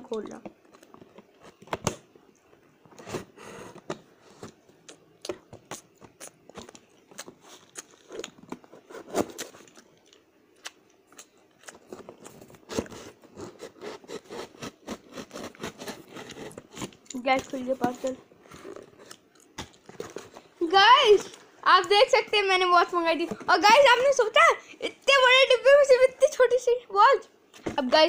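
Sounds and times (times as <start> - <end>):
knife scraping cardboard box: 12.6 - 16.9
knife cutting packing tape: 12.6 - 17.5.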